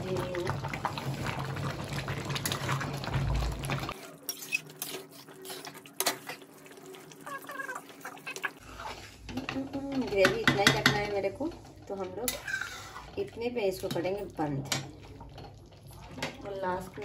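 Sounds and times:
curry simmering: 0.0 - 17.0
metal spatula scraping pan: 3.9 - 6.4, 8.5 - 14.2.

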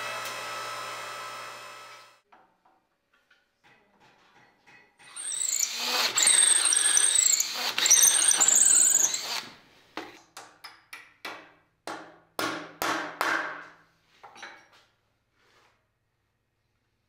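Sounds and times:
cordless drill boring into wood: 0.0 - 2.2, 5.0 - 9.5.

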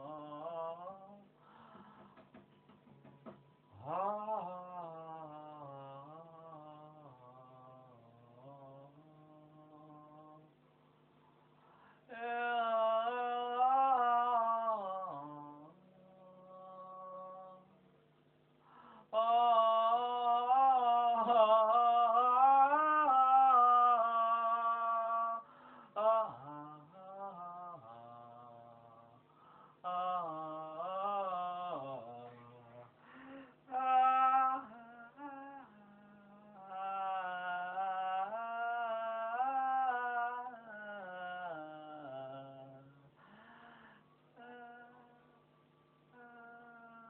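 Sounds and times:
woman singing slow melody: 0.0 - 1.3, 12.1 - 17.8, 33.6 - 43.1, 44.3 - 45.5, 46.1 - 47.0
person singing chant-like notes: 0.0 - 1.8, 3.7 - 10.6, 12.0 - 17.9, 19.0 - 47.0.

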